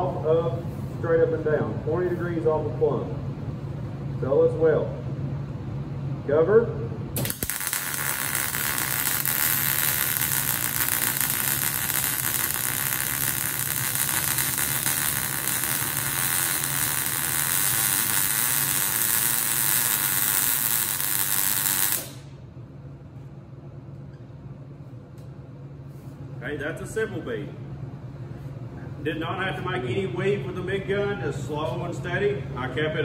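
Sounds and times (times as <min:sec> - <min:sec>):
welding arc crackling: 0:07.2 - 0:22.3.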